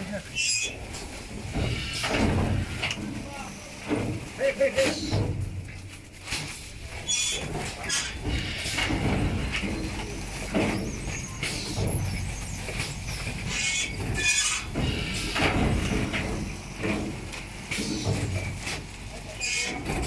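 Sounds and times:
rustling and clattering: 0.0s - 20.0s.

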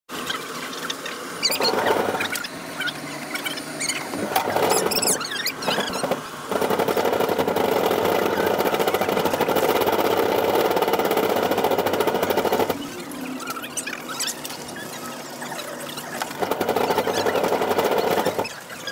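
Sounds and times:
cart wheel squeaks: 1.4s - 2.5s, 3.4s - 18.9s
shopping cart rattling on tiles: 16.4s - 18.5s.

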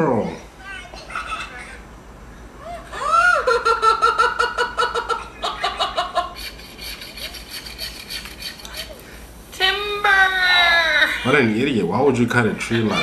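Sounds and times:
high-pitched laughter: 2.6s - 9.0s.

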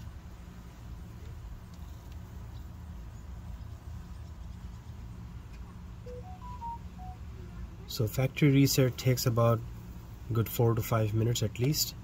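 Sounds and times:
faint short tones: 6.1s - 7.5s.

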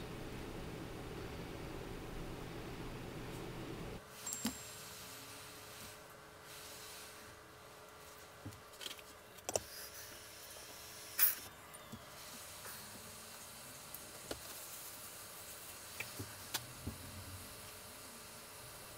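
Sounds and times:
hot-air tool hissing: 4.3s - 7.4s.

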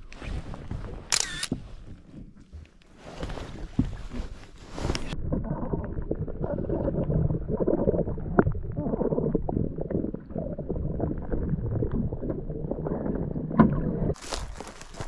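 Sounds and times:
muffled underwater rumble: 0.0s - 14.2s
underwater knocks: 10.7s - 14.2s.

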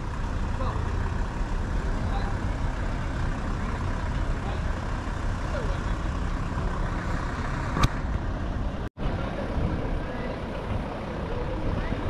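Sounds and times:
low rumble of vehicles: 0.0s - 12.0s.

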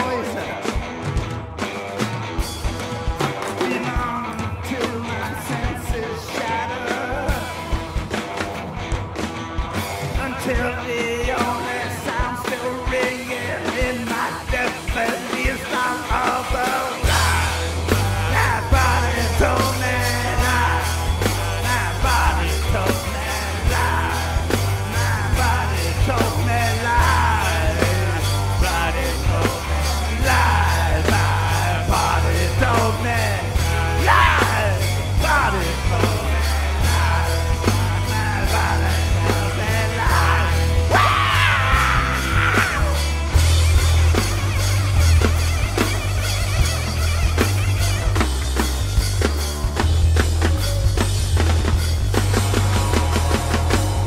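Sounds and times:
heavy bass and drum groove: 0.0s - 54.0s
live rock band: 0.0s - 54.0s
person singing: 3.4s - 7.8s, 10.1s - 44.0s.

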